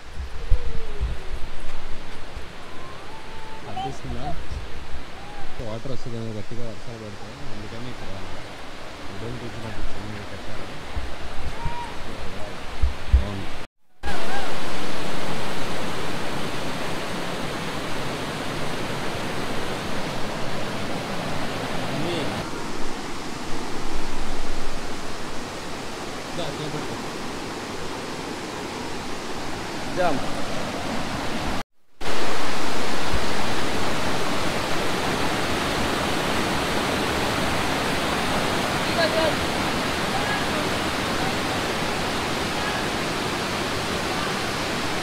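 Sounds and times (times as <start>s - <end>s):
waterfall roaring: 0.0s - 45.0s.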